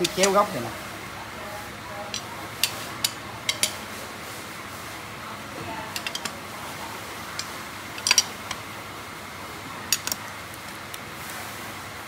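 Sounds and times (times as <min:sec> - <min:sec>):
wrench clicking on bolts: 0:02.1 - 0:03.8, 0:06.0 - 0:06.4, 0:07.4 - 0:08.3, 0:09.9 - 0:10.2.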